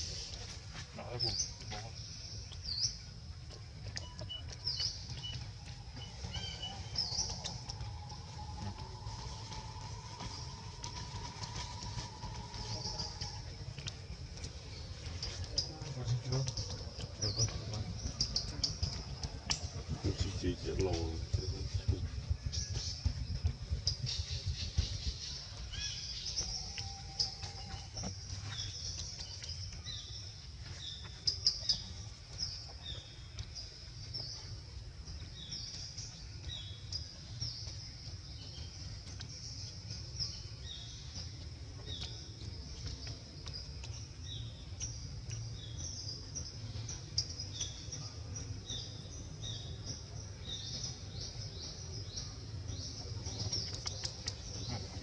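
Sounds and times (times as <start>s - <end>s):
birds chirping: 0.0s - 55.0s
low rumble: 2.0s - 31.0s.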